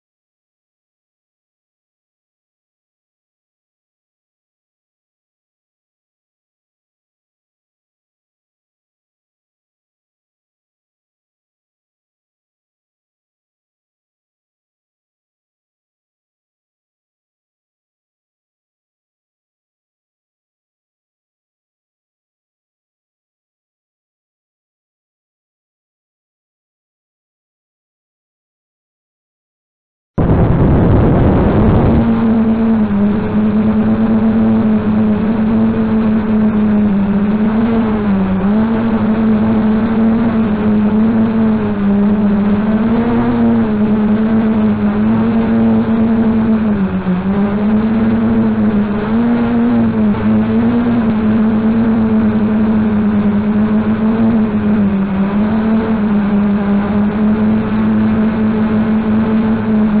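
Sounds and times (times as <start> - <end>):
drone motors buzzing whine: 30.2 - 60.0.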